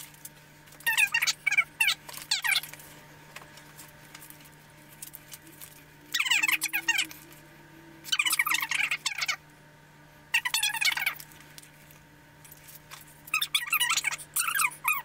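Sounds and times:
high-pitched squeaky voice chattering: 0:00.9 - 0:02.6, 0:06.1 - 0:07.1, 0:08.1 - 0:09.4, 0:10.4 - 0:11.2, 0:13.3 - 0:15.0.

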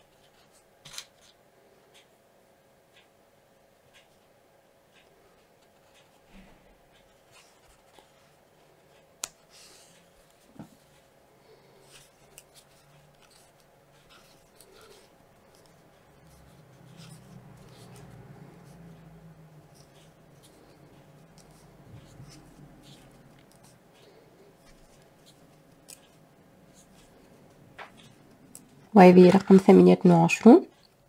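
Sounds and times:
crochet hook scratching yarn: 0:11.9 - 0:29.4.

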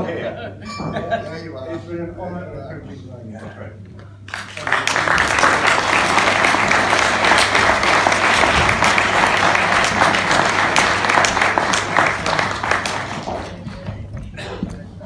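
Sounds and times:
audience applauding: 0:04.3 - 0:13.9.

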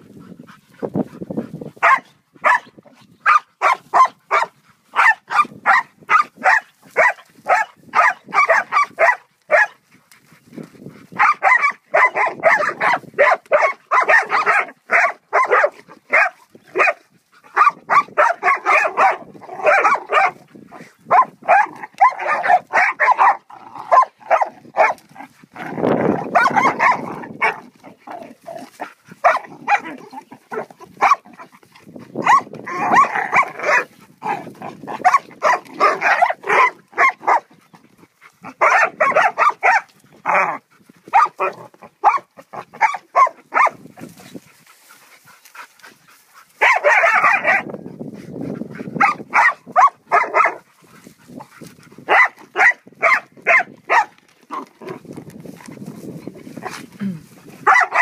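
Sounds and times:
dogs barking: 0:01.8 - 0:09.8, 0:11.1 - 0:25.0, 0:26.1 - 0:27.7, 0:28.6 - 0:31.5, 0:32.2 - 0:37.5, 0:38.4 - 0:43.8, 0:46.5 - 0:47.8, 0:49.0 - 0:50.7, 0:52.0 - 0:55.0, 0:57.6 - 0:58.0.

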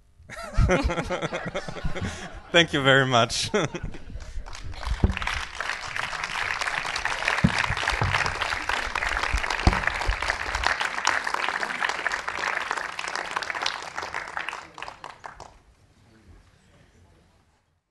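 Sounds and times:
audience applauding: 0:04.2 - 0:15.6.

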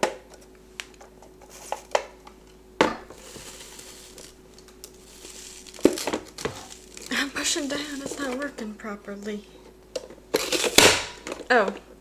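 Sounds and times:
soft rustling: 0:03.2 - 0:08.4.

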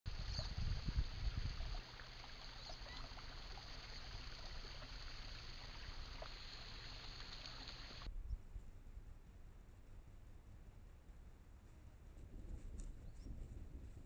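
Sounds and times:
steady hiss: 0:00.1 - 0:08.1
faint ticks: 0:00.2 - 0:08.1.

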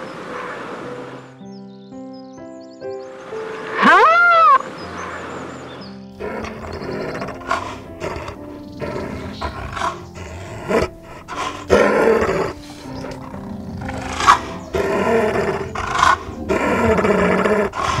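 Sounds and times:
large animal growling and roaring: 0:06.2 - 0:18.0.

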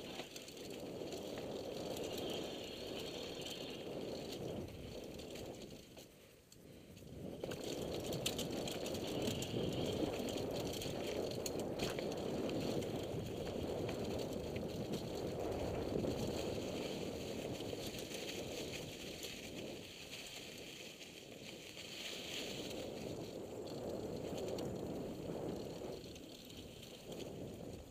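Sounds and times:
bike rattling and clicking: 0:00.0 - 0:27.9
tyres crunching over leaves: 0:08.4 - 0:23.4.

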